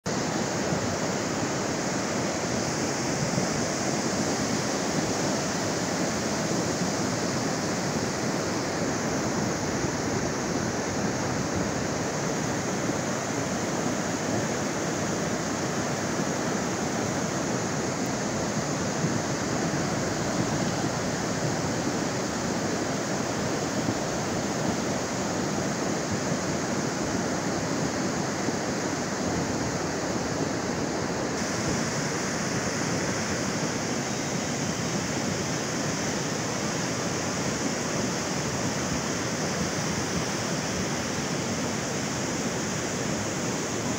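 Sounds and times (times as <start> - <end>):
floodwater rushing: 0.1 - 43.9.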